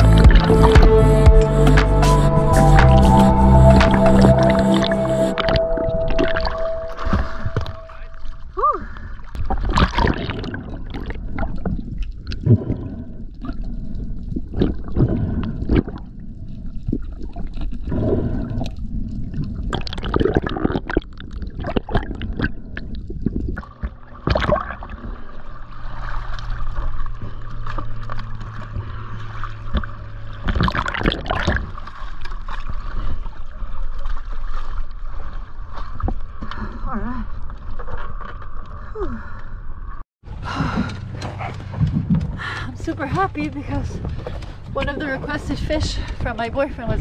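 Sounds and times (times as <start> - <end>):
water splashing and gurgling: 0.0 - 47.0
steady low hum: 40.3 - 47.0.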